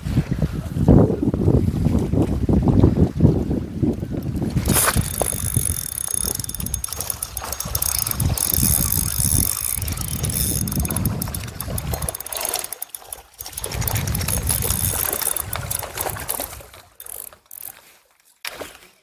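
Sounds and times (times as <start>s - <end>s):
fishing reel clicking whirr: 4.2s - 17.8s.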